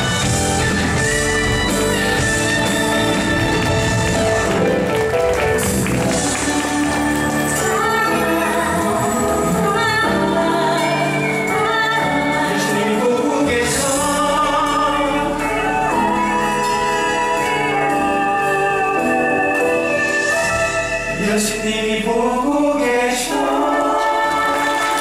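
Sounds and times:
instrumental accompaniment: 0.0 - 22.6
cast singing together: 21.2 - 25.0.

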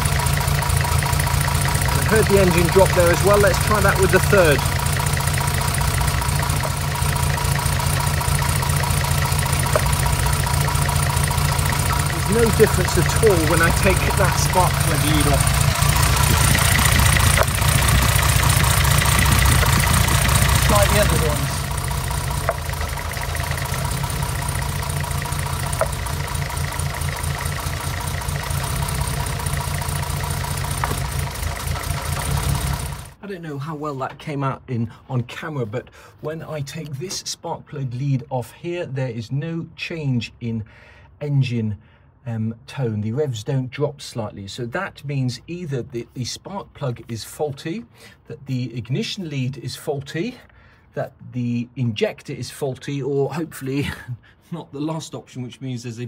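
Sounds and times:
car engine idling: 0.0 - 33.2.

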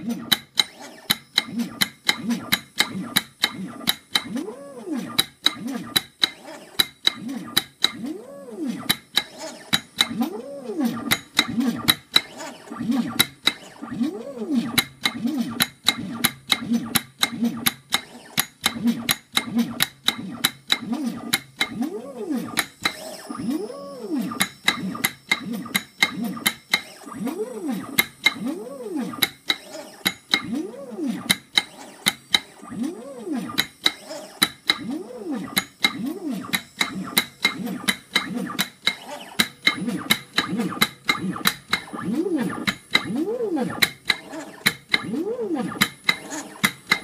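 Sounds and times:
stepper motor whining: 7.2 - 15.6, 20.9 - 47.0.

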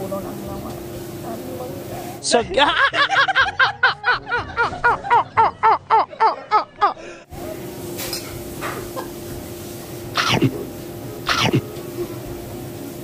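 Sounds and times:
steady room hum: 8.5 - 13.0
high-pitched laughter: 10.2 - 10.5, 11.3 - 11.6.

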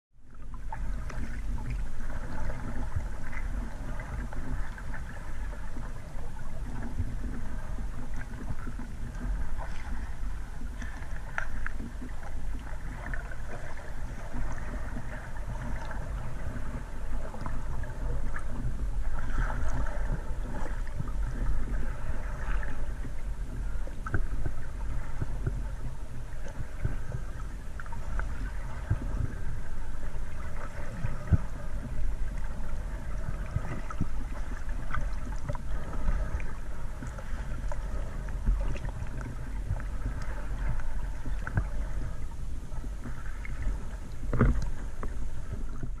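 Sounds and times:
underwater low hum: 0.1 - 46.0
clicks and crackles underwater: 0.2 - 46.0.

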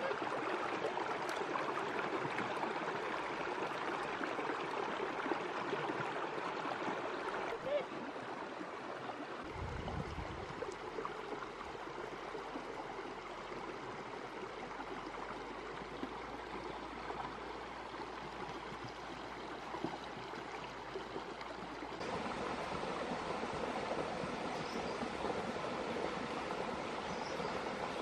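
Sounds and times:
stream splashing over stones: 0.0 - 28.0.

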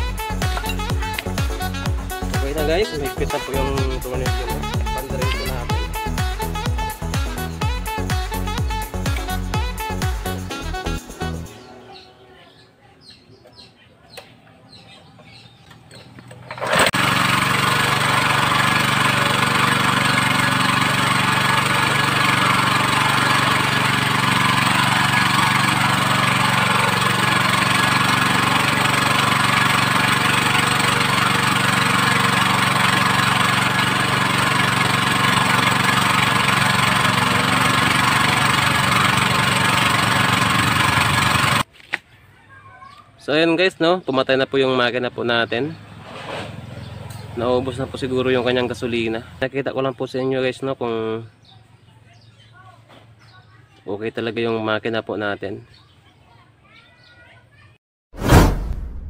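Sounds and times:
small gasoline engine running: 0.0 - 11.5, 16.2 - 41.7, 45.9 - 49.5.

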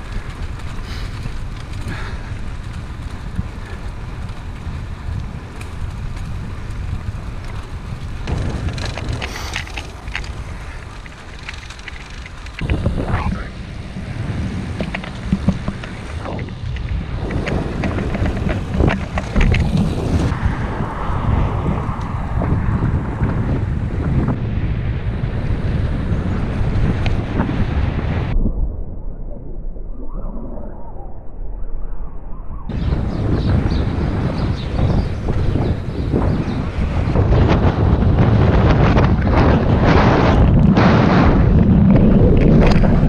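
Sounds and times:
crackles and bumps: 0.0 - 43.0
wind buffeting microphone: 0.0 - 43.0.

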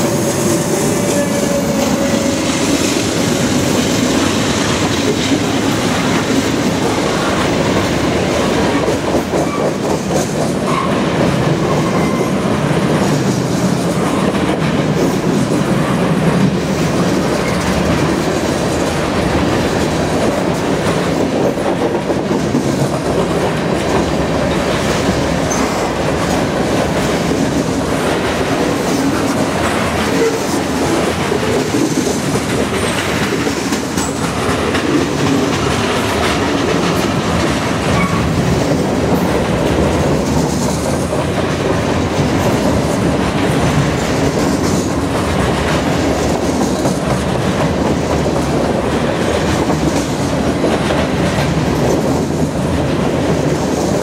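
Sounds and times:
steel wheels rumbling on rail: 0.0 - 54.0.

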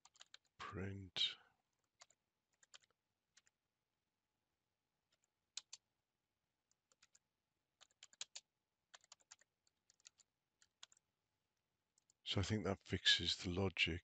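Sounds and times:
keyboard typing clicks: 0.0 - 0.5, 2.0 - 3.5, 5.1 - 5.8, 7.8 - 11.0.

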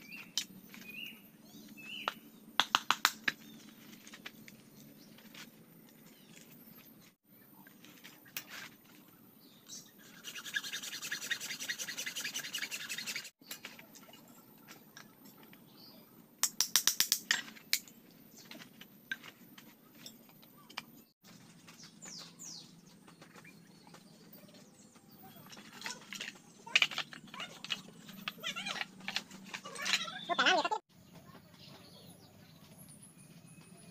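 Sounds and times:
birds chirping: 0.0 - 16.4, 17.8 - 33.9
knife scraping bamboo: 10.0 - 13.3.

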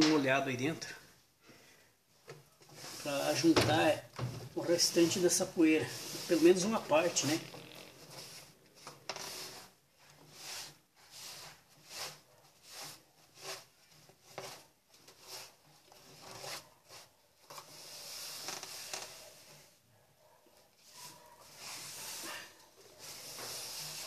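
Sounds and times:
wet cloth rubbing plastic tub: 2.7 - 19.3.

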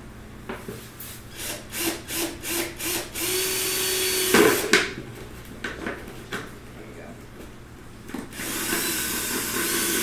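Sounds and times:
cordless drill whining: 1.3 - 4.7, 8.3 - 10.0.

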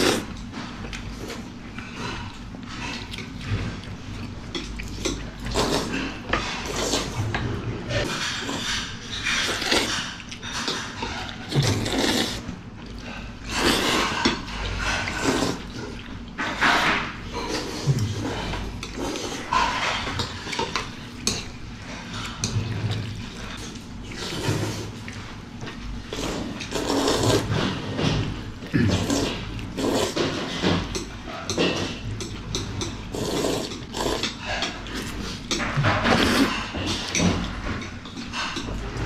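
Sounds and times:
noodles being slurped: 0.0 - 0.3, 4.8 - 7.2, 8.0 - 20.7, 26.1 - 27.8, 28.7 - 30.6, 33.0 - 35.4.

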